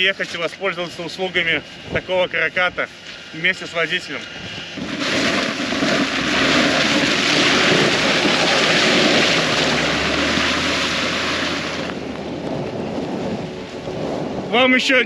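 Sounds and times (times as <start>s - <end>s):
engine hum: 4.2s - 14.5s
tyres hissing on slush: 4.6s - 11.9s.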